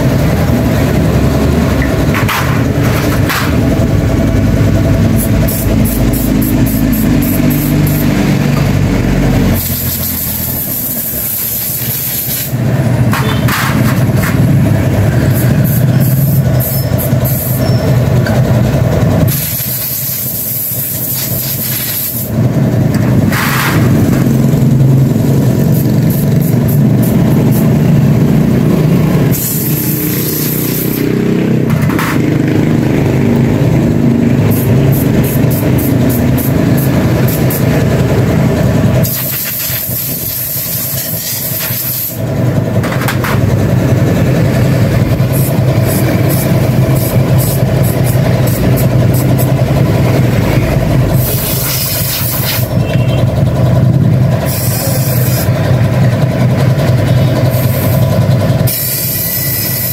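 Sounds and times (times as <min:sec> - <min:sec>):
engine running: 0:00.0 - 0:59.9
hissing air: 0:05.0 - 0:12.8, 0:19.2 - 0:22.5, 0:29.1 - 0:31.5, 0:39.0 - 0:42.3, 0:45.0 - 0:52.8.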